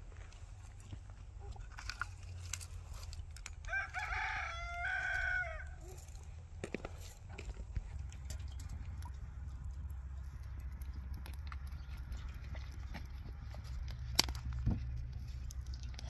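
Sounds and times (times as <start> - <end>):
rooster crowing: 3.7 - 6.0.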